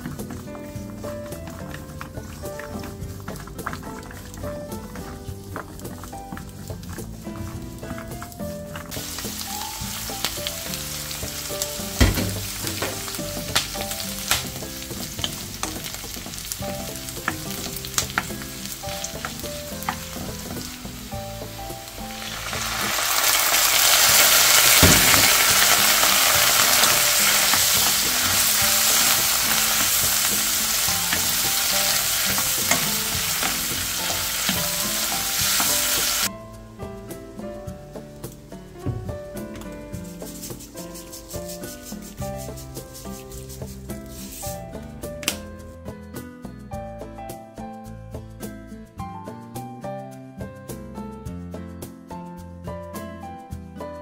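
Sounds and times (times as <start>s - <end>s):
food stir-frying in a wok: 0.0s - 36.3s
wooden spatula stirring: 0.0s - 36.3s, 39.6s - 44.6s
sauce sizzling in hot pan: 8.9s - 36.3s.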